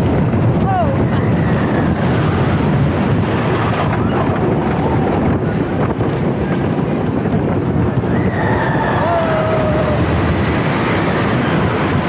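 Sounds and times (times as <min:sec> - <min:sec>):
roller coaster running on track: 0:00.0 - 0:12.0
wind noise on microphone: 0:00.0 - 0:12.0.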